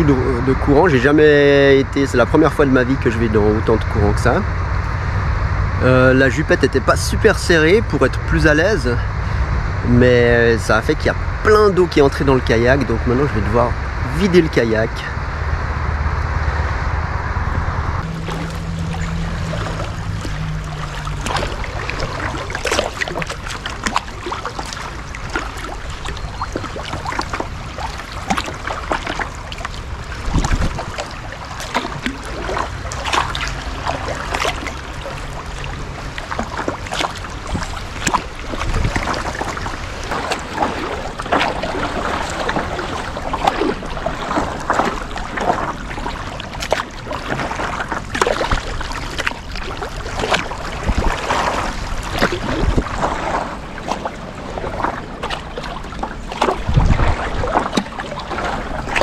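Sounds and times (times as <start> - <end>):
water splashing and trickling: 18.0 - 59.0.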